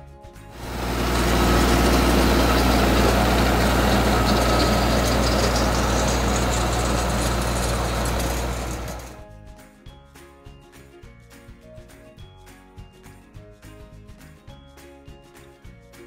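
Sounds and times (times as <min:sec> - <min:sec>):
rotary tiller churning soil: 0:00.6 - 0:09.2
tractor engine running: 0:00.6 - 0:09.2.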